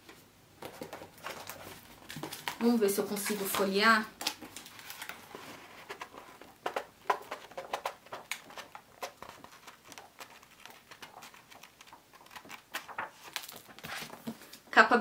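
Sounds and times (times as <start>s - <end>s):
paper pages being flipped: 0.6s - 14.6s.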